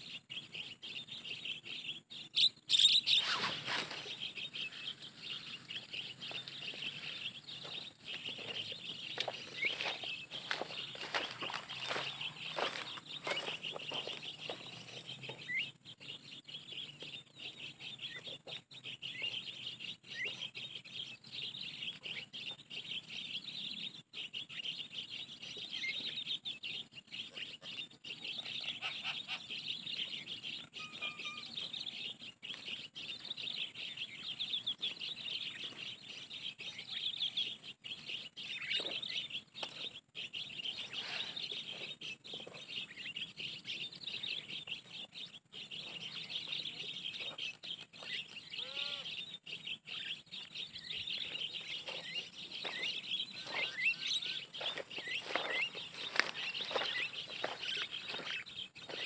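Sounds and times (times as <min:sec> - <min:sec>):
small birds chirping: 0:00.0 - 0:59.0
whistled bird notes: 0:02.3 - 0:05.4, 0:30.0 - 0:32.2, 0:45.2 - 0:59.0.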